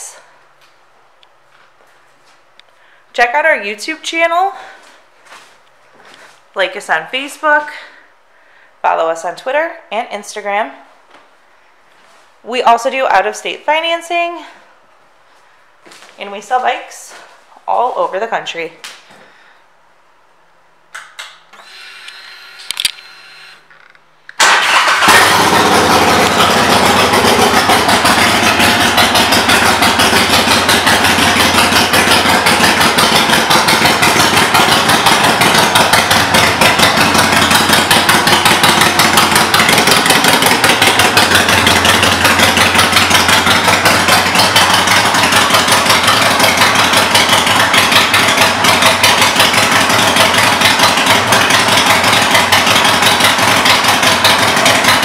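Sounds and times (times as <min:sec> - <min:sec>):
starter whirring: 0:21.5 - 0:55.0
motorcycle engine idling: 0:24.7 - 0:55.0.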